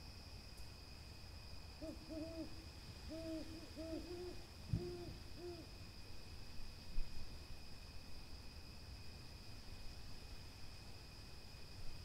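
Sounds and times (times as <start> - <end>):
high insect drone: 0.0 - 12.0
owl soft hoots: 1.8 - 5.7.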